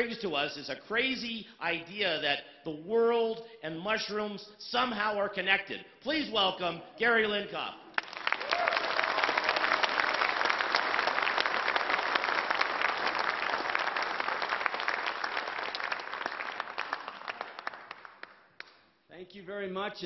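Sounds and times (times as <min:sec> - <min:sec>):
audience applauding: 0:08.0 - 0:18.5.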